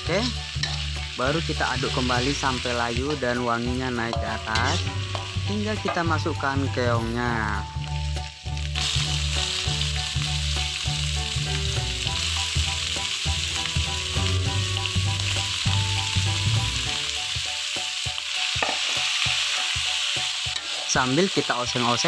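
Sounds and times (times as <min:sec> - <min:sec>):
food sizzling in hot oil: 0:00.0 - 0:22.0
metal spoon scraping a wok: 0:00.2 - 0:01.2, 0:04.1 - 0:06.0, 0:20.5 - 0:20.9.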